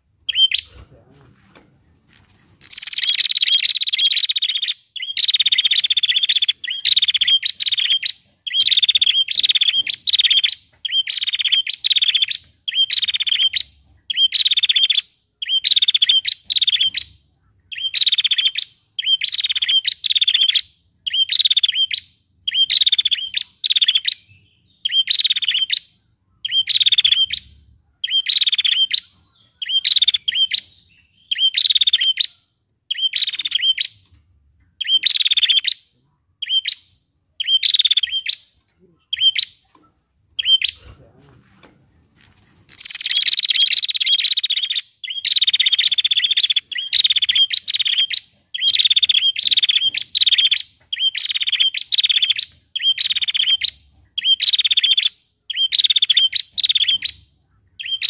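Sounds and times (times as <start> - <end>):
bird rasping buzzy trill: 42.2 - 57.2.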